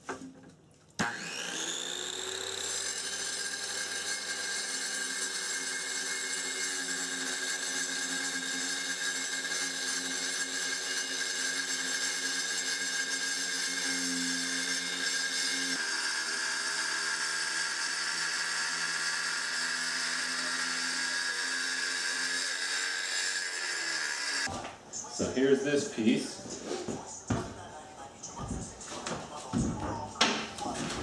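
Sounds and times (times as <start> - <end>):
circular saw cutting stone: 1.0 - 24.5.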